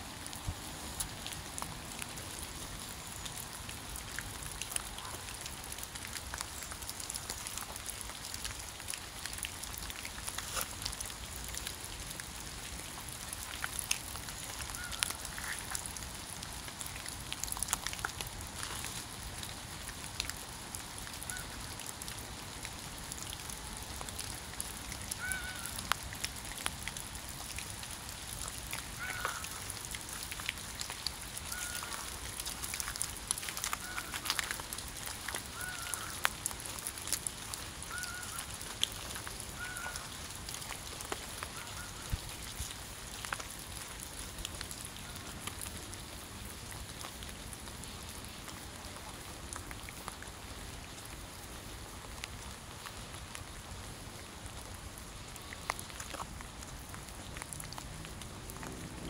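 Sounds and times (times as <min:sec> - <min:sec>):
raindrops ticking: 0:00.0 - 0:59.0
waterfowl calls: 0:25.2 - 0:25.8, 0:29.0 - 0:29.6, 0:31.5 - 0:32.1, 0:33.8 - 0:34.3, 0:35.6 - 0:36.2, 0:37.9 - 0:38.5, 0:39.6 - 0:40.1.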